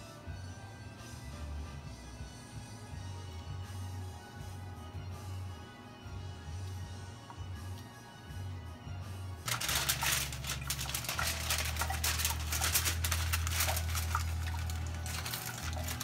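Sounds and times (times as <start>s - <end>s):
aluminium foil crinkling: 9.4s - 16.0s.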